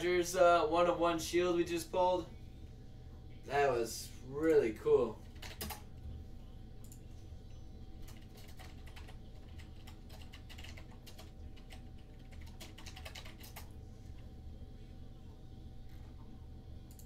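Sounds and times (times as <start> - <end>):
steady low hum: 0.0 - 17.0
typing on computer keyboard: 5.3 - 5.9, 8.0 - 13.8.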